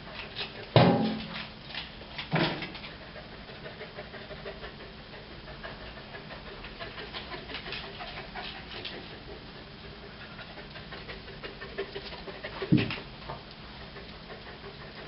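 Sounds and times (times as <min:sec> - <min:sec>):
dog panting and sniffing: 0:00.0 - 0:15.0.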